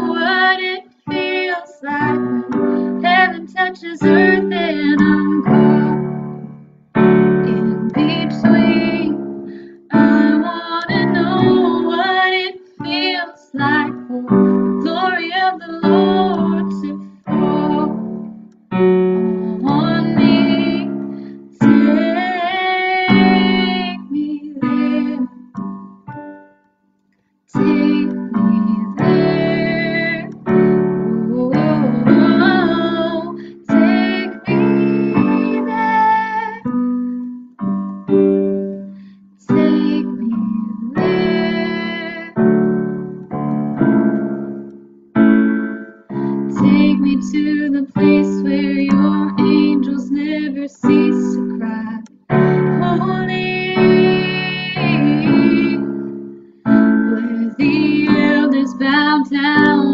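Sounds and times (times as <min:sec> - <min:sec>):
woman singing: 0:00.0 - 0:06.4, 0:07.0 - 0:25.6, 0:27.5 - 0:37.5, 0:39.4 - 0:42.8, 0:46.1 - 0:56.1, 0:56.7 - 0:59.9
keyboard chords: 0:00.0 - 0:59.9.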